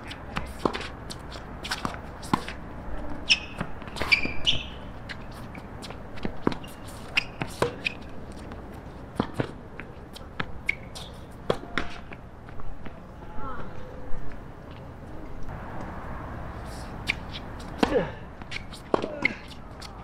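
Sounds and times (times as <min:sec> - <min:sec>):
tennis ball bouncing: 0:00.0 - 0:02.6, 0:03.2 - 0:12.2
racket striking tennis ball: 0:03.2 - 0:05.2, 0:05.9 - 0:12.2, 0:17.0 - 0:19.9.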